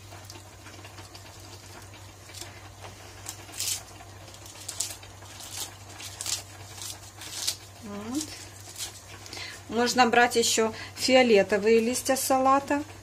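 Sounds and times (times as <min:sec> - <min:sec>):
low steady hum: 0:00.0 - 0:13.0
lettuce tearing and rustling: 0:00.1 - 0:09.7.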